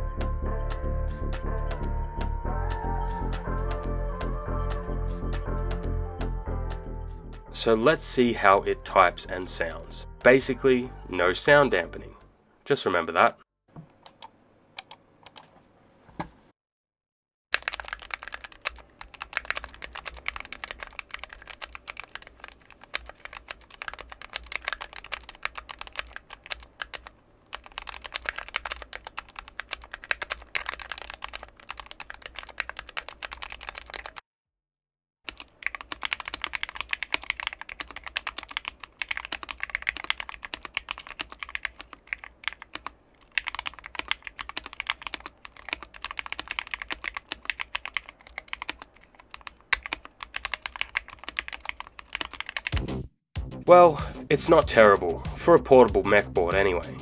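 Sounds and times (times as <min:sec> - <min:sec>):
typing on mechanical keyboard: 0:17.6 - 0:34.2, 0:35.3 - 0:52.8.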